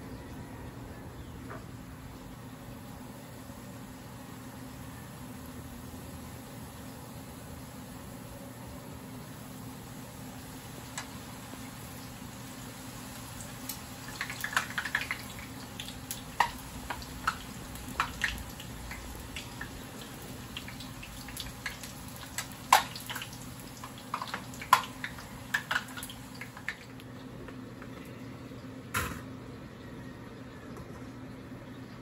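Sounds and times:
oil crackling and popping: 10.8s - 27.9s.

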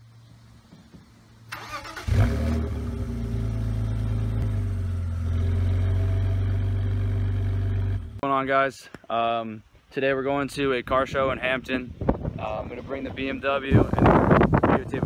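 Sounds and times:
engine starter cranking: 1.5s - 2.8s
engine revving and idling: 1.7s - 8.2s.

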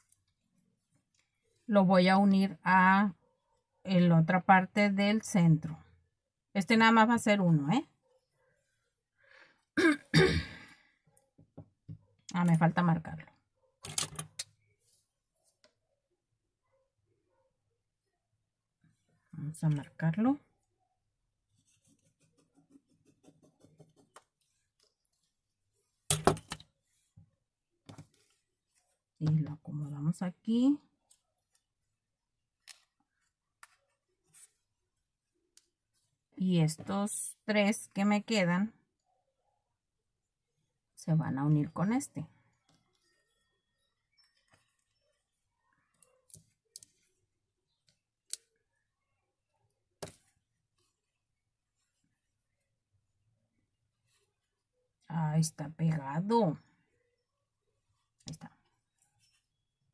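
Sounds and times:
pen scratching on cloth: 21.6s - 25.3s.

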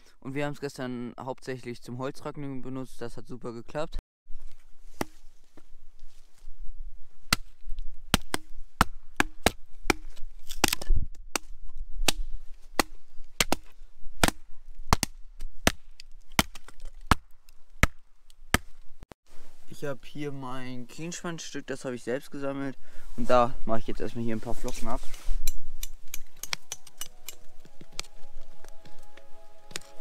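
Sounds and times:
hatchet chopping wood: 5.0s - 5.2s, 7.3s - 7.5s, 8.1s - 18.8s.

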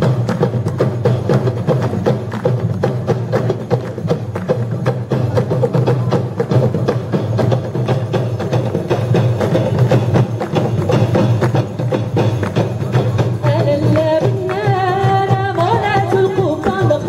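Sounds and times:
frame drums beating: 0.0s - 17.0s
women singing: 13.4s - 17.0s.

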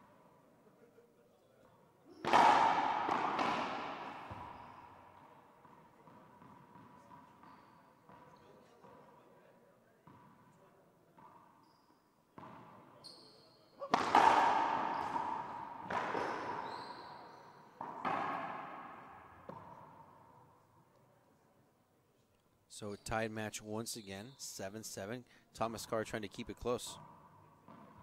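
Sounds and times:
ball striking wall: 2.2s - 4.9s, 13.9s - 16.6s
ball bouncing on hardwood floor: 2.2s - 8.4s, 12.4s - 12.7s, 13.9s - 16.8s, 17.8s - 20.0s
racquet striking ball: 2.2s - 8.4s, 12.4s - 12.9s, 13.8s - 20.6s, 27.0s - 28.0s
shoe squeaks: 7.1s - 8.6s, 11.3s - 12.2s, 12.9s - 14.0s, 14.9s - 15.2s, 16.0s - 17.6s, 23.8s - 24.6s.

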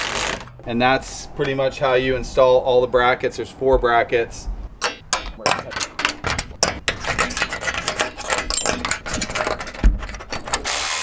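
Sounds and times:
metal brackets clicking and tapping: 4.8s - 10.8s.

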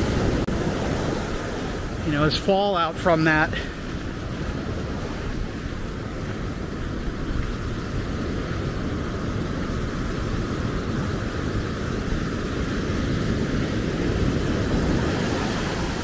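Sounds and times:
wind on microphone: 0.0s - 2.4s, 3.5s - 16.0s
surf breaking on sand: 0.0s - 16.0s.

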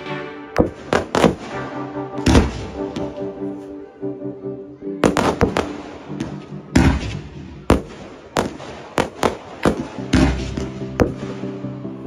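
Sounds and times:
fireworks bangs: 0.6s - 1.6s, 5.0s - 11.4s.

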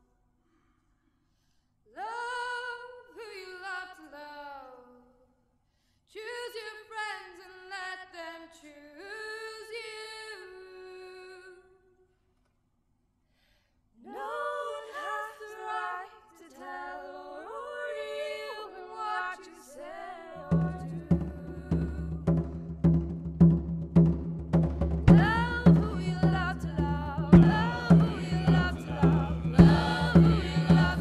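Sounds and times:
choir singing a cappella: 14.0s - 22.3s, 25.1s - 31.0s
steady drum beat: 20.5s - 31.0s.

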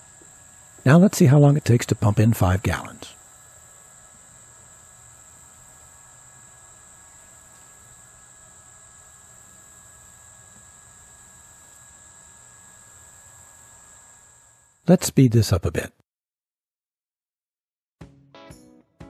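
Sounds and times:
high-pitched insect drone: 0.0s - 13.4s
electric pump humming: 0.0s - 14.9s.

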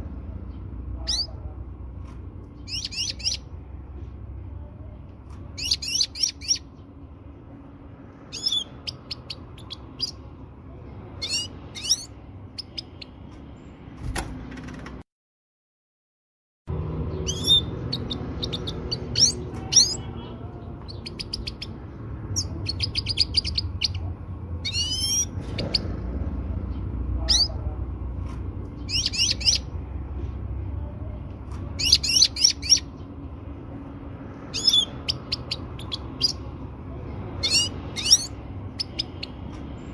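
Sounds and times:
goldfinch chirping and trilling: 1.0s - 1.4s, 2.6s - 3.6s, 5.6s - 6.8s, 8.3s - 10.2s, 11.2s - 13.2s, 17.1s - 25.9s, 27.2s - 27.6s, 28.8s - 29.7s, 31.8s - 33.0s, 34.5s - 36.5s, 37.4s - 39.4s.

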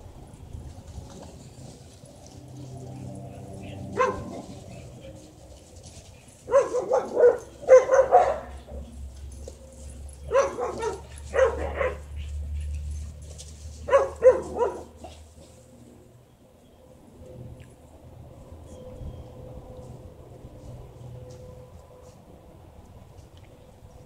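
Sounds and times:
dogs barking: 3.0s - 5.3s, 6.2s - 13.1s, 13.7s - 15.3s.

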